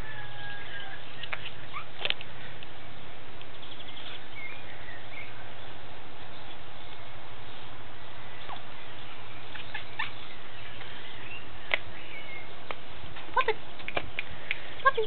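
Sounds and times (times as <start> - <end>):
faint bird chirps: 8.2 - 12.6.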